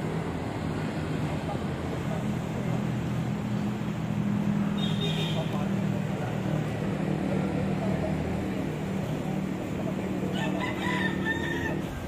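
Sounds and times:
low engine hum: 0:00.0 - 0:12.0
rooster crowing: 0:10.2 - 0:12.0.

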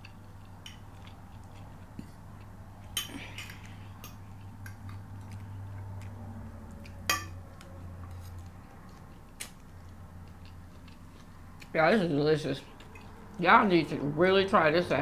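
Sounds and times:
low steady hum: 0:00.0 - 0:15.0
cutlery clinking against a plate: 0:02.9 - 0:04.9, 0:07.0 - 0:07.4.

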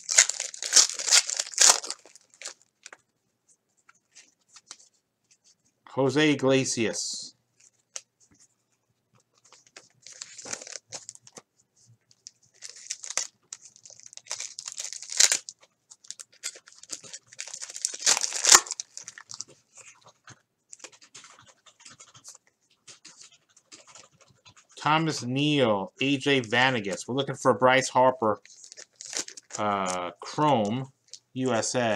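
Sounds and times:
foil wrapper crinkling and tearing: 0:00.0 - 0:03.0, 0:09.6 - 0:11.4, 0:12.2 - 0:19.6, 0:28.4 - 0:30.1.

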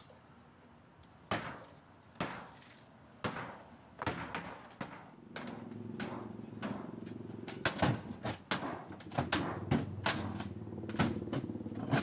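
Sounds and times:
wooden boards knocking and clattering: 0:01.3 - 0:12.0
steady low hum: 0:02.8 - 0:12.0.

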